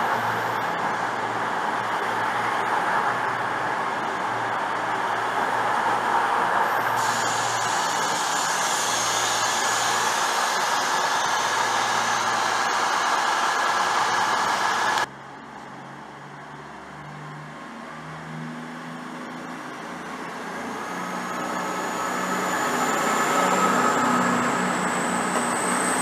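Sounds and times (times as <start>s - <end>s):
train engines hissing: 0.0s - 15.1s, 20.4s - 26.0s
diesel train engines: 0.0s - 15.2s, 19.2s - 26.0s
thin whine rising in pitch: 7.0s - 15.1s, 20.2s - 26.0s.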